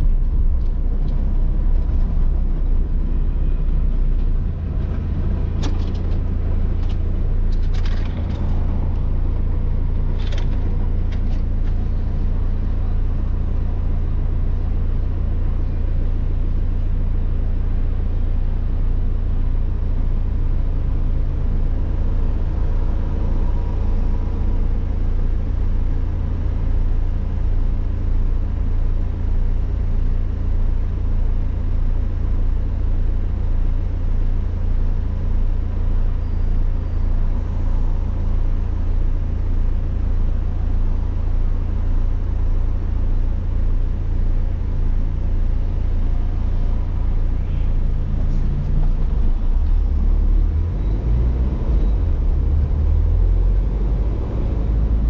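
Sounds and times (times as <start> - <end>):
car engine idling: 0.0 - 55.0.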